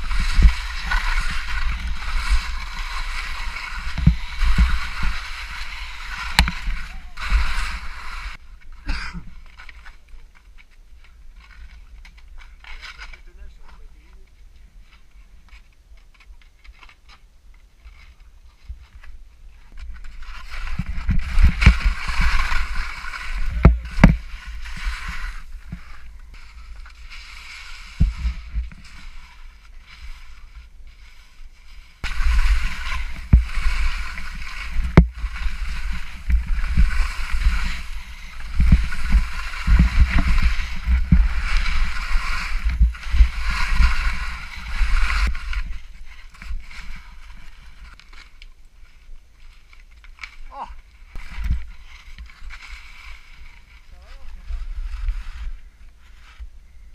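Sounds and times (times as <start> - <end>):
wind rumbling on microphone: 0.0 - 8.6, 18.6 - 47.9
skis scraping over snow: 0.0 - 17.0, 17.8 - 56.8
knocks of skis or poles: 23.4 - 25.8, 38.6 - 44.1.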